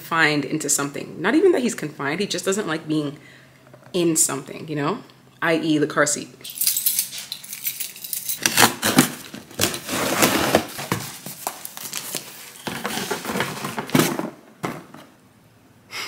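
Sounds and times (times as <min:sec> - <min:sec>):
cardboard flaps scraping and rustling: 0:08.5 - 0:15.0.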